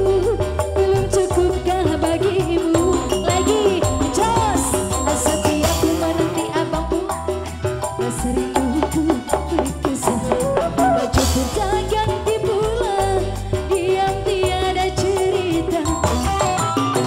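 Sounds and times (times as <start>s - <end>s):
live band music: 0.0s - 17.0s
woman singing into a microphone: 0.0s - 17.0s
hand drum beat: 8.3s - 17.0s.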